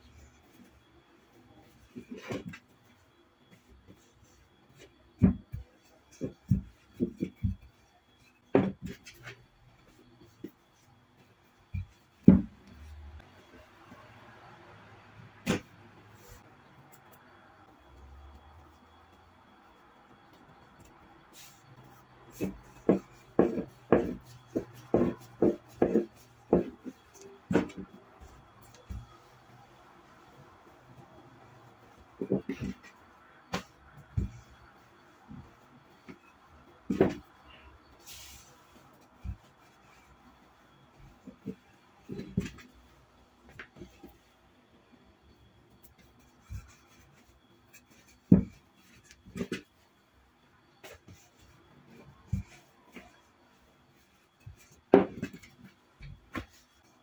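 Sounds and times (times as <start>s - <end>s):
rolling pin rolling dough: 0.0s - 14.1s, 17.1s - 57.0s
rolling pin knocking on tabletop: 22.4s - 26.8s.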